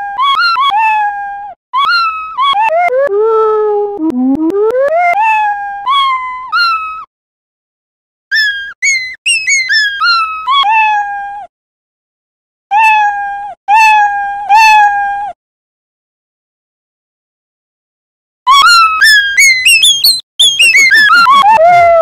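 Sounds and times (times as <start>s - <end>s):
cartoon cat meow sound effect: 0.0s - 7.1s, 8.3s - 11.5s, 12.7s - 15.4s, 18.5s - 22.0s.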